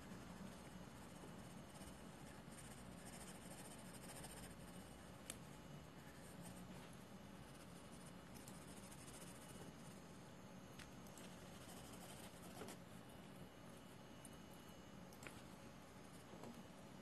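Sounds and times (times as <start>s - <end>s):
pencil scratching on paper: 0.0s - 5.0s, 7.4s - 9.9s, 11.5s - 12.8s.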